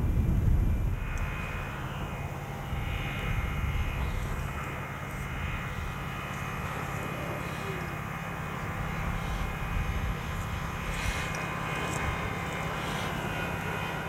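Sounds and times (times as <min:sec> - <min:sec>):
loud low rumble: 0:00.0 - 0:06.2
low hum: 0:00.0 - 0:14.0.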